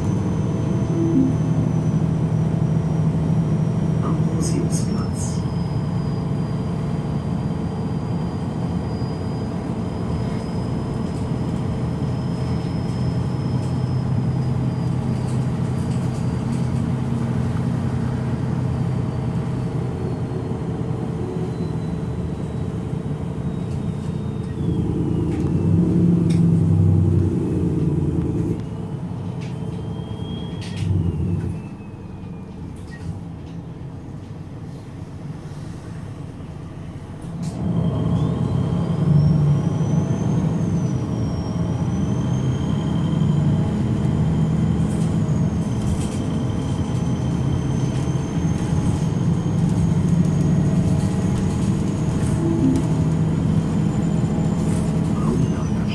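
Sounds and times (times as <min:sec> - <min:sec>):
bus diesel engine idling: 0:00.0 - 0:55.9.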